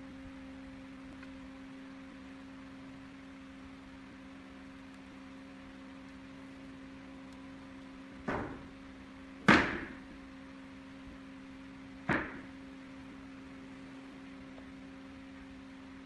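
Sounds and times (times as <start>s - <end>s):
steady low hum: 0.0s - 16.0s
sharp knocks on wood: 8.2s - 8.7s, 9.4s - 10.0s, 12.0s - 12.5s.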